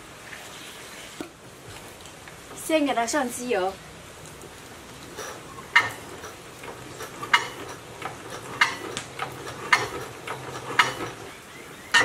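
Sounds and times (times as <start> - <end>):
sharp metallic clicks: 5.8 - 11.2.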